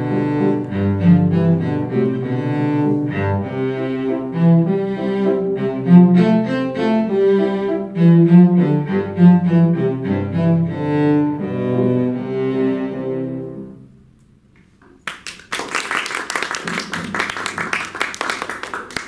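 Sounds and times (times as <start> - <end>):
cello: 0.0 - 13.9
piano accompaniment: 0.0 - 14.0
audience applause: 15.0 - 19.0.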